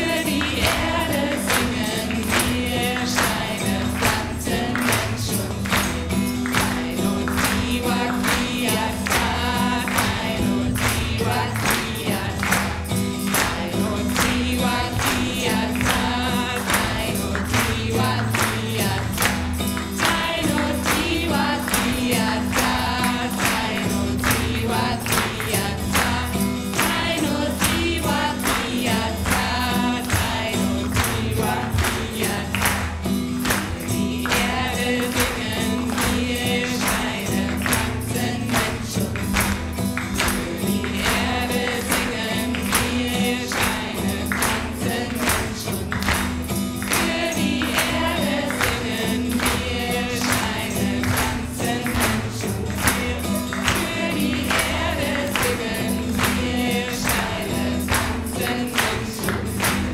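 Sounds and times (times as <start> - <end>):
group chanting: 0.0 - 5.8, 13.4 - 32.9, 46.9 - 59.8
percussion beat: 0.0 - 59.9.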